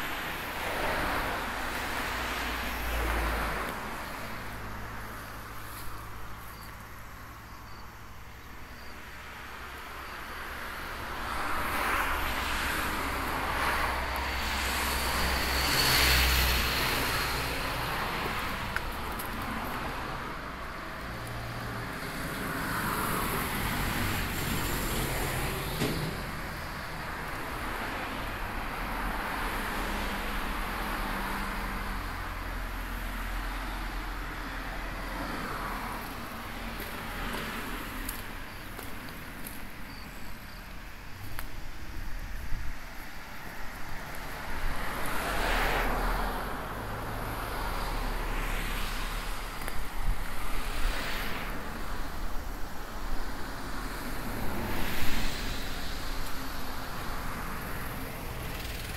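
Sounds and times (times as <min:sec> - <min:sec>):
cars passing on road: 0:00.0 - 0:58.9.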